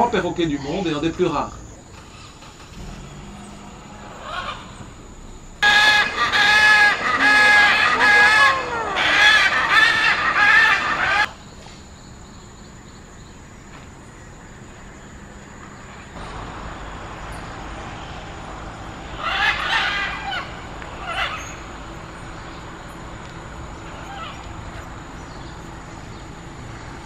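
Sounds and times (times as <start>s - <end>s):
macaw calling loudly: 3.5s - 5.0s, 5.6s - 11.4s, 18.7s - 25.5s.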